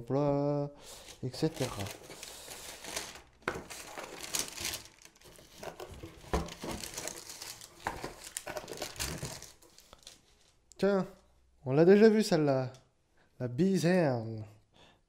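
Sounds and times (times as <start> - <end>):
packaging rustling and crinkling: 0.9 - 10.6.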